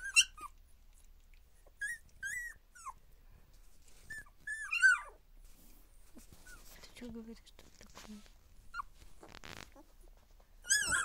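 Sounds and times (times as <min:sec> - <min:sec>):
puppy whining in high squeaks: 0:00.0 - 0:00.6, 0:01.6 - 0:03.0, 0:04.0 - 0:05.2, 0:08.6 - 0:09.0, 0:09.6 - 0:11.0.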